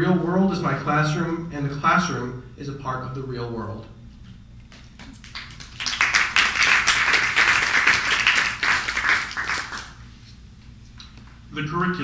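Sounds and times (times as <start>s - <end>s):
audience applauding: 5.0s - 10.0s.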